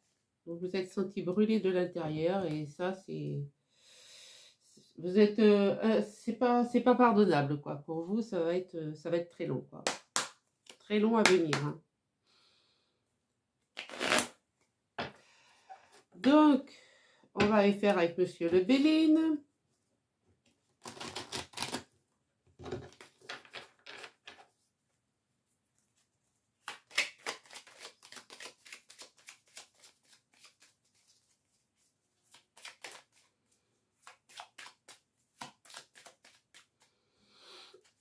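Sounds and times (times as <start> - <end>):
cards being shuffled: 13.8 - 14.3, 20.8 - 21.8, 26.6 - 31.6, 32.2 - 33.3, 34.0 - 36.9.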